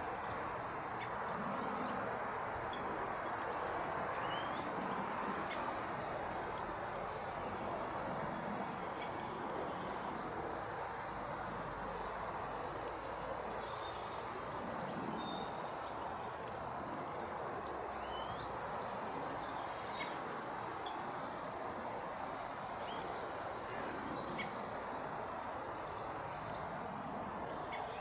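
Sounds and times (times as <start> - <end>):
steady background hiss: 0.0 - 28.0.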